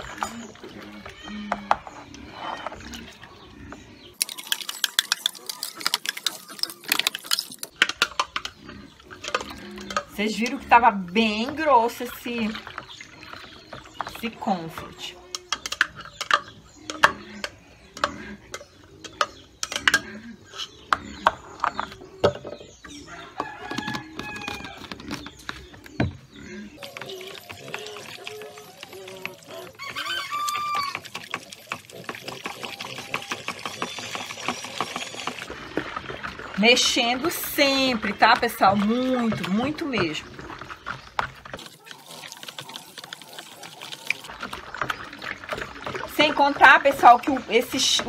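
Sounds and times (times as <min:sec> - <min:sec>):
spatula scraping plastic jug: 0:00.0 - 0:22.0, 0:23.6 - 0:43.5
chickens clucking: 0:00.0 - 0:48.0
rooster crowing: 0:29.7 - 0:31.0
utensils knocking plastic basin: 0:30.6 - 0:41.6.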